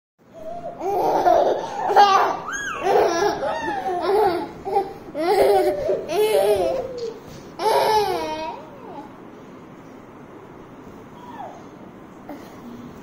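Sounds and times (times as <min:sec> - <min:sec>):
toddler laughing: 0:00.4 - 0:09.1.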